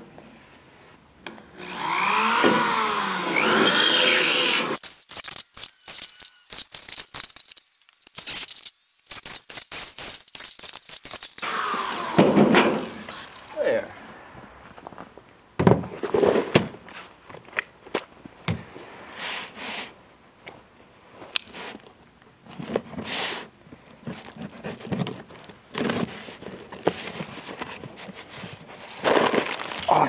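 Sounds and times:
box of screws being handled: 0:04.9 - 0:11.4, 0:24.0 - 0:30.0.

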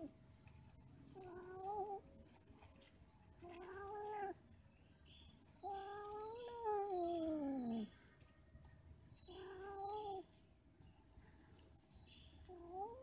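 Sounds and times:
cats yowling: 0:03.4 - 0:04.4, 0:05.6 - 0:07.9, 0:09.3 - 0:10.3.

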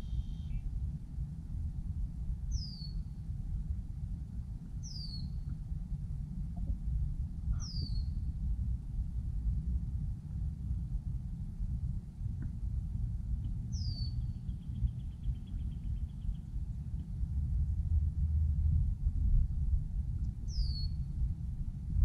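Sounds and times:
bird whistle falling in pitch: 0:00.0 - 0:00.6
steady low rumble: 0:00.0 - 0:22.0.

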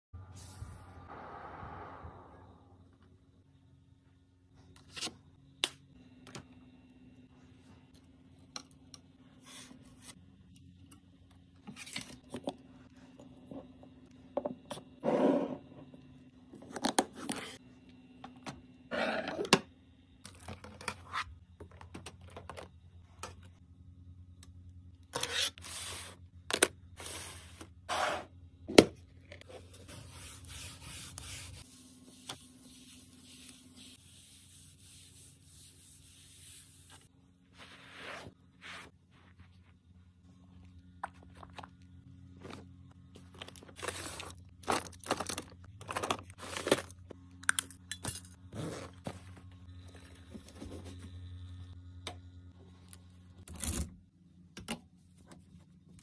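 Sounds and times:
cloth wiping countertop: 0:29.5 - 0:39.8.

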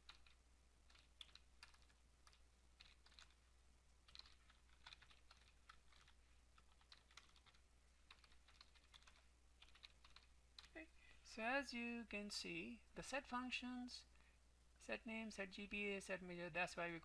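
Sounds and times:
computer keyboard typing: 0:00.0 - 0:10.8.

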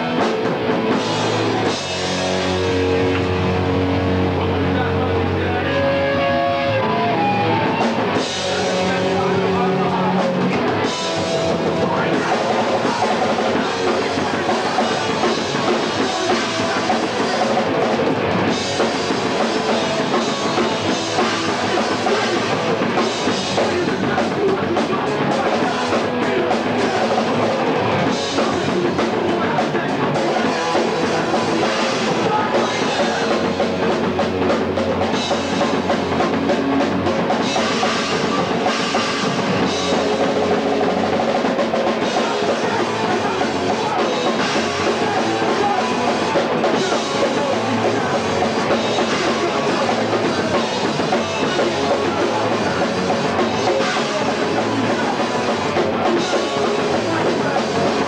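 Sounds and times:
punk band playing live: 0:00.0 - 0:58.0.

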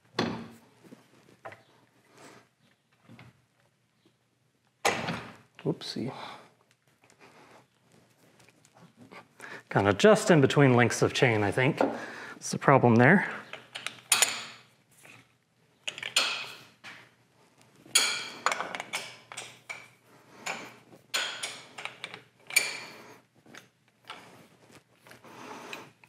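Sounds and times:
steel parts clinking and rattling: 0:13.5 - 0:14.7, 0:15.8 - 0:16.7, 0:17.9 - 0:22.9.

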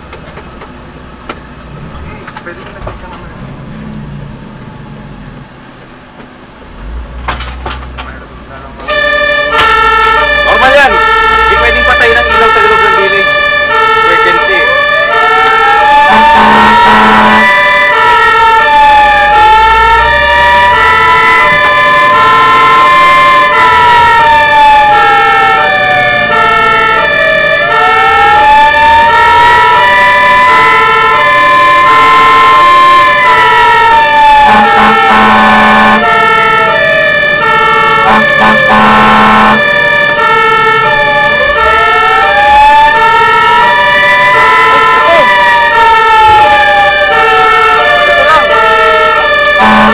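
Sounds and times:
rising and falling siren: 0:08.8 - 0:49.9
two-tone siren: 0:08.8 - 0:49.9
short horn blasts: 0:16.1 - 0:17.5, 0:34.4 - 0:36.1, 0:38.0 - 0:39.6, 0:49.6 - 0:49.9.

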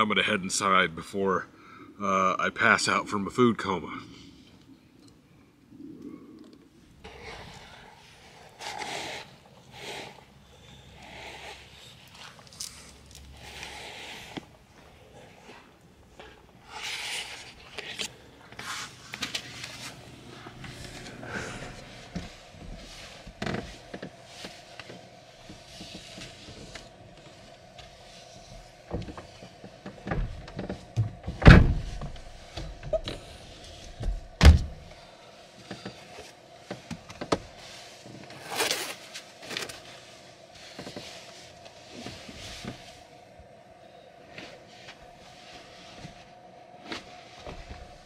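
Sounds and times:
faint steady hum: 0:00.0 - 0:48.0
rustling of clothing and bedding: 0:14.3 - 0:48.0.

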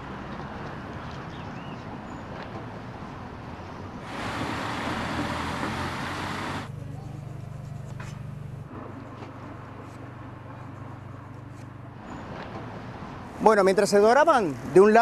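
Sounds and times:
steady low hum: 0:04.0 - 0:13.4.

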